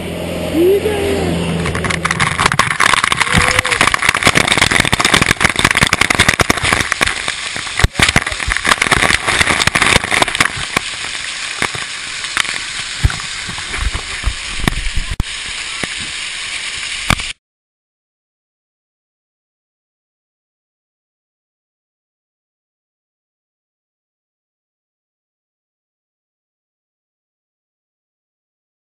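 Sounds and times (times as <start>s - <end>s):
skateboard wheels rolling on asphalt: 1.6s - 11.0s
sharp clicks and knocks: 1.6s - 16.1s
wind on microphone: 13.0s - 16.2s.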